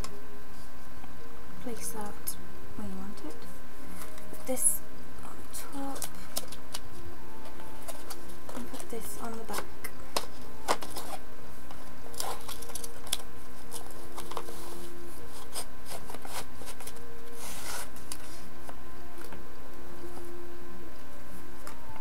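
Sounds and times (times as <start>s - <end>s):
faint steady hum: 0.0s - 22.0s
paper rubbing and rustling: 7.5s - 18.5s.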